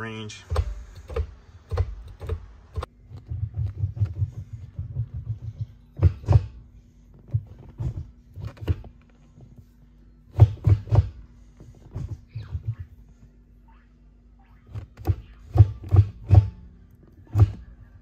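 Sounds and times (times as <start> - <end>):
gear shifter knocking and clicking: 0.5 - 9.1.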